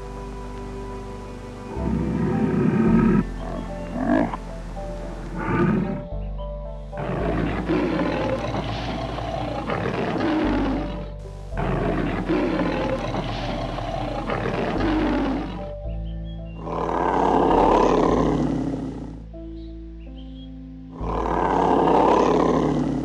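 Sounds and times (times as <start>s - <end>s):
background music: 0.0s - 23.0s
lion roaring: 1.7s - 4.5s, 5.2s - 6.1s, 7.0s - 15.8s, 16.6s - 19.3s, 21.0s - 23.0s.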